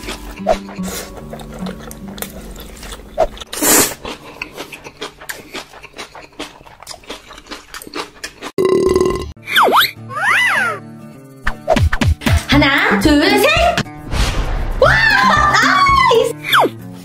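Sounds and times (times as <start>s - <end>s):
wet chewing and smacking: 0.0s - 8.6s.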